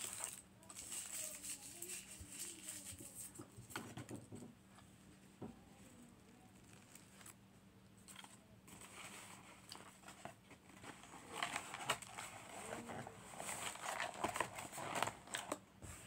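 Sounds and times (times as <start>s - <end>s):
cardboard box crinkling: 8.8s - 15.6s.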